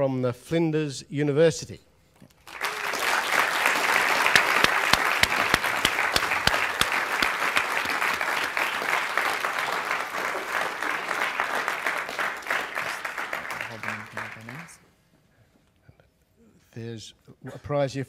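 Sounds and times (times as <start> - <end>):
audience applauding: 2.4 - 14.8.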